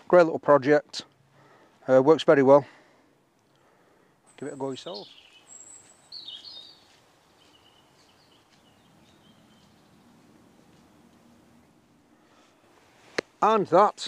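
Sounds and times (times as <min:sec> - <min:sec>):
small birds chirping: 0:03.2 - 0:12.6.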